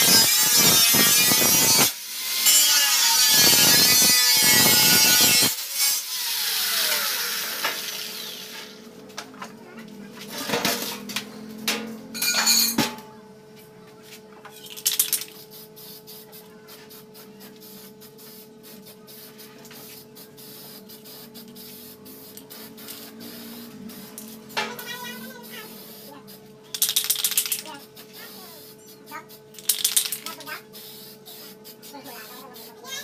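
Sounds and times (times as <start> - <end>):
aerosol spray can hissing: 15.0 - 24.4, 25.1 - 29.0, 29.6 - 33.0.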